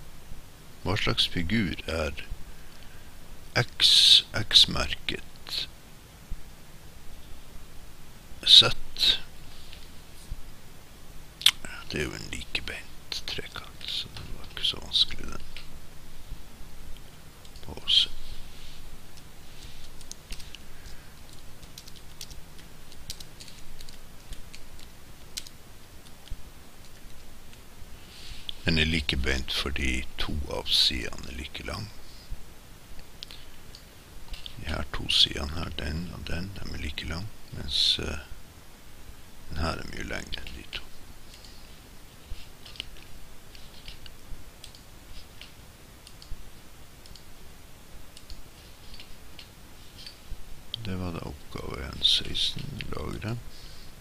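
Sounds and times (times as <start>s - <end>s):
computer mouse clicking: 19.2s - 27.3s, 42.6s - 46.4s, 47.0s - 47.3s, 48.1s - 50.2s
typing on a computer keyboard: 21.2s - 26.2s.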